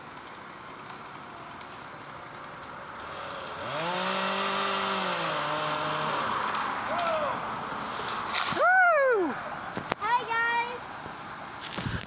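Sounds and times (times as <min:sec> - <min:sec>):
chainsaw revving: 0:00.0 - 0:06.7.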